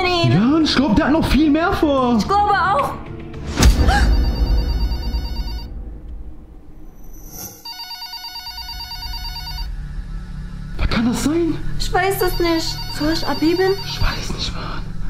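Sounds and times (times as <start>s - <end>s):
telephone electronic ringing: 4.1s - 5.7s, 7.6s - 9.7s, 12.2s - 14.3s
low thump: 5.6s - 7.3s.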